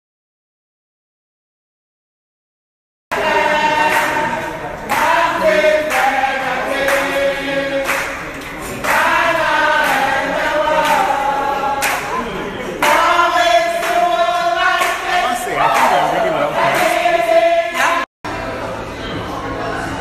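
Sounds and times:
group singing in chorus: 3.1 - 20.0
hand claps: 3.8 - 11.2, 11.8 - 17.1.

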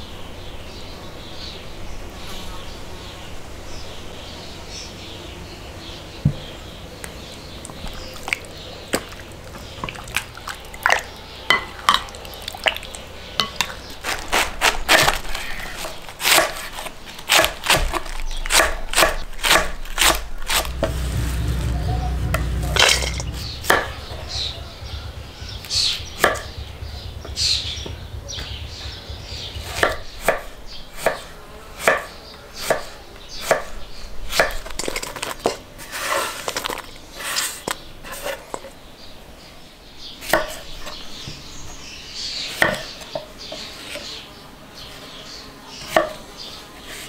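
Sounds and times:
knife chopping on wooden board: 16.2 - 21.1, 26.2 - 26.5, 29.6 - 33.7, 42.5 - 43.0
low rumble: 20.2 - 30.8.

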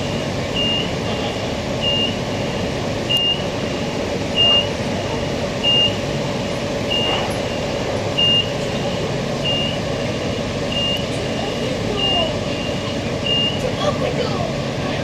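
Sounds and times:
train equipment hum: 0.0 - 15.0
high electronic beep: 12.0 - 13.7.

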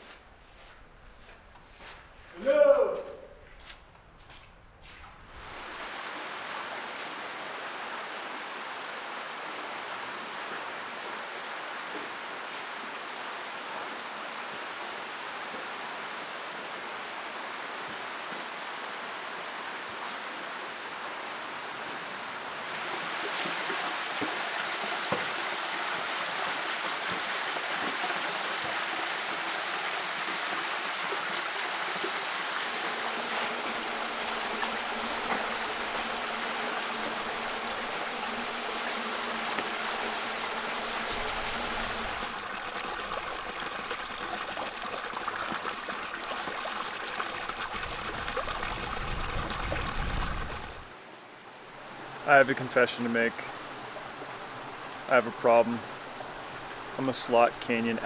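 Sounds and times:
stream splashing over rocks: 5.4 - 19.9, 22.4 - 51.0.

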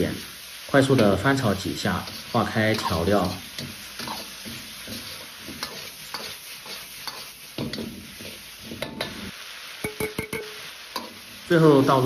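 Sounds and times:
food sizzling: 0.0 - 12.0
metal ladle scraping a wok: 1.8 - 9.3.

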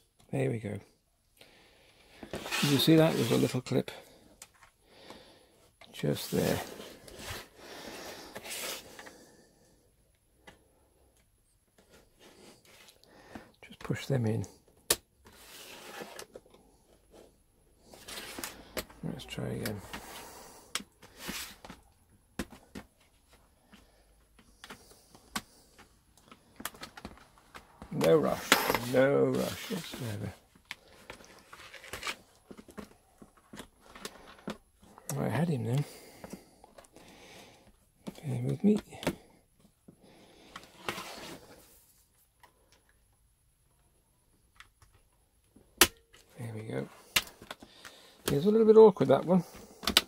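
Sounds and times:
screwdriver scraping plastic case: 2.3 - 3.5
plastic keyboard deck clicks and taps: 49.8 - 50.0.

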